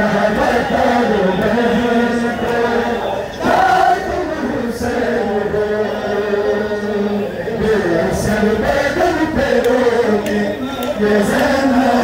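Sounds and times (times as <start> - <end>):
men chanting in unison: 0.0 - 12.0.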